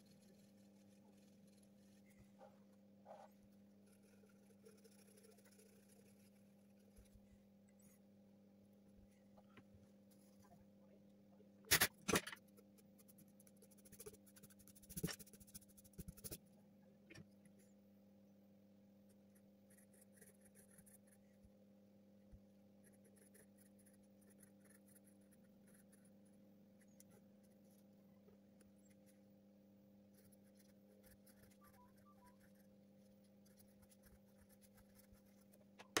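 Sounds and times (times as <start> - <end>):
pencil scratching on paper: 0.0 - 7.2, 12.4 - 16.4, 19.4 - 21.4, 22.8 - 27.9, 30.1 - 36.0
low steady hum: 0.0 - 36.0.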